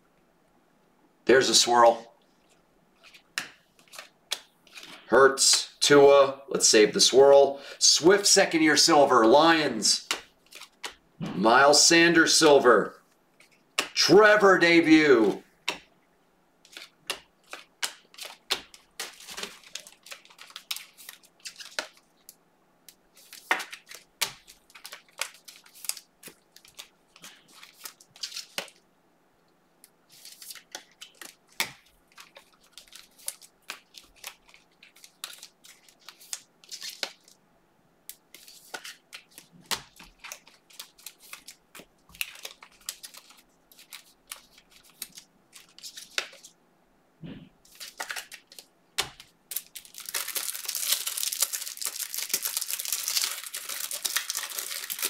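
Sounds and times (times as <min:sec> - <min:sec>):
cards being handled: 0:03.0 - 0:05.6, 0:10.0 - 0:11.0, 0:16.6 - 0:28.8, 0:30.1 - 0:37.4, 0:38.1 - 0:46.5, 0:47.6 - 0:55.0
card wrappers tearing and crinkling: 0:16.7 - 0:22.0, 0:23.1 - 0:28.8, 0:30.1 - 0:37.3, 0:38.3 - 0:46.5, 0:47.7 - 0:55.0.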